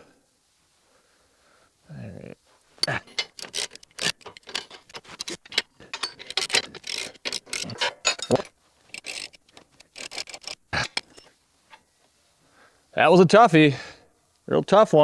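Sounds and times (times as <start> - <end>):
ratchet wrench clicking: 2.8 - 11.2
tool scraping and knocking metal: 2.8 - 11.8.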